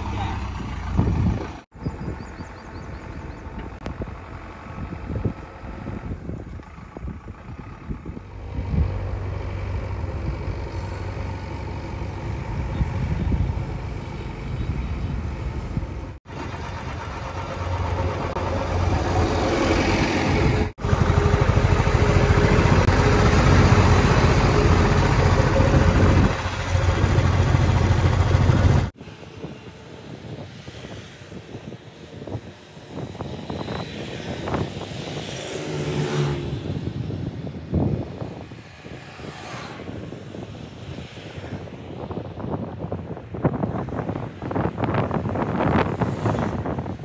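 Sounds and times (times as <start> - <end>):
diesel engine running: 0.0 - 29.0
road traffic passing: 0.0 - 47.0
wind buffeting microphone: 0.3 - 47.0
motorcycle engines passing: 15.7 - 29.0, 33.6 - 40.1.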